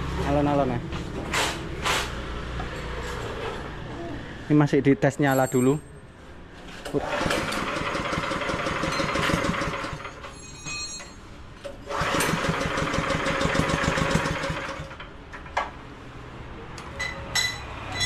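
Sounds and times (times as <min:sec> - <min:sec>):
small engine pull-start: 0:06.8 - 0:10.3, 0:11.8 - 0:15.0
small engine running: 0:07.0 - 0:10.2, 0:11.9 - 0:15.0.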